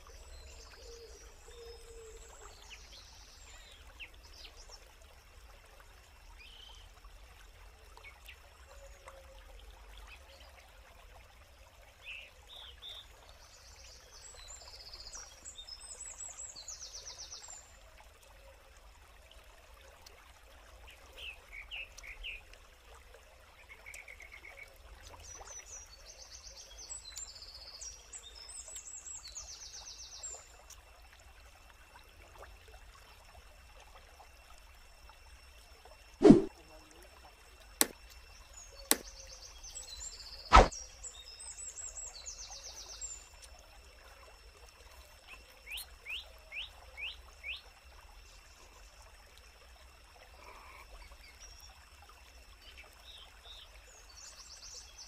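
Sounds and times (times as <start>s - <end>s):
stream rushing: 36.2s - 36.5s, 40.5s - 40.7s.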